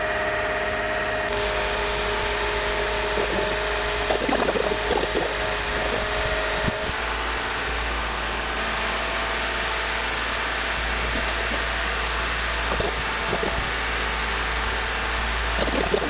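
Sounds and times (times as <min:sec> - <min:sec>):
car engine running: 0:00.0 - 0:16.0.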